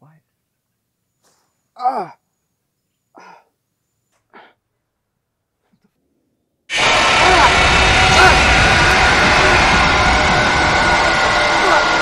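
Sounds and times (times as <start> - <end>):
man sighing: 3.2 - 3.6
short breaths: 3.2 - 3.6, 4.3 - 4.8.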